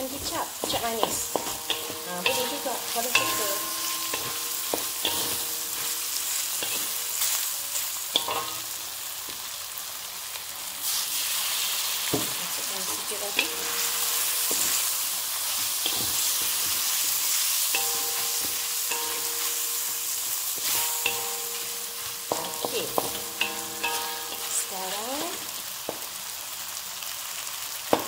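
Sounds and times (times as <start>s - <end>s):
meat sizzling in hot oil: 0.0s - 28.0s.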